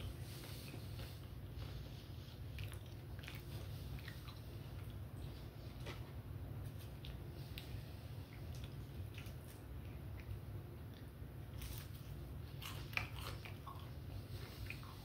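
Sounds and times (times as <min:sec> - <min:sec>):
person chewing food: 0:00.0 - 0:15.0
steady low hum: 0:00.0 - 0:15.0.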